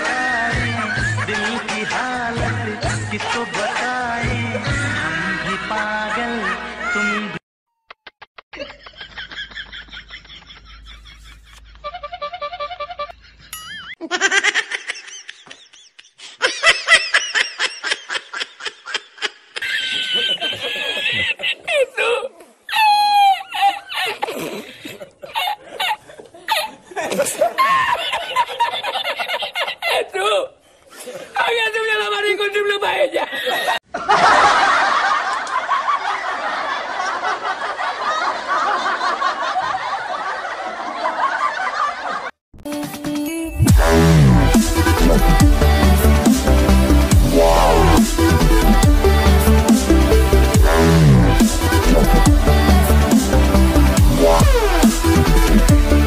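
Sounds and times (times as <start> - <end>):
laughter in quick pulses: 8.1 - 30.1, 33.1 - 42.4.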